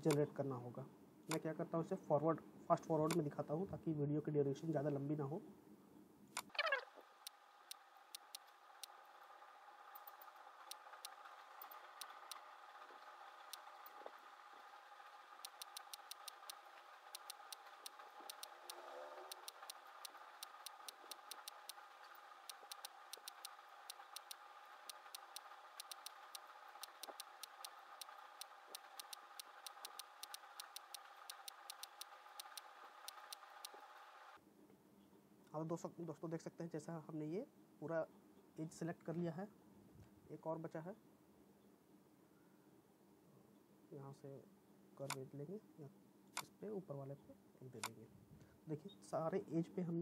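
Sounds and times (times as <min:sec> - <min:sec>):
computer mouse clicking: 0:06.4 - 0:09.0, 0:09.9 - 0:14.2, 0:15.1 - 0:34.4.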